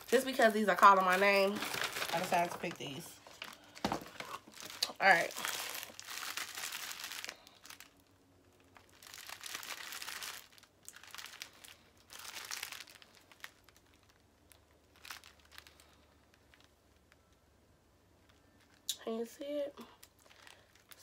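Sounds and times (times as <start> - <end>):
plastic snack bag crinkling: 0.0 - 17.4, 20.0 - 21.0.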